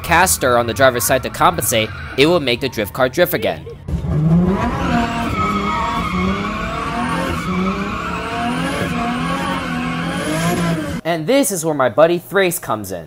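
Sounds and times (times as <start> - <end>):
car engine revving: 0.0 - 11.0
tyres skidding: 0.0 - 11.0.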